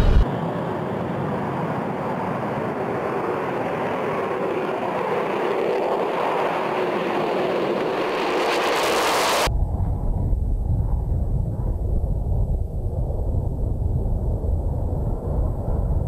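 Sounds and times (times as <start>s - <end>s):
jet engine roar: 0.0s - 10.2s.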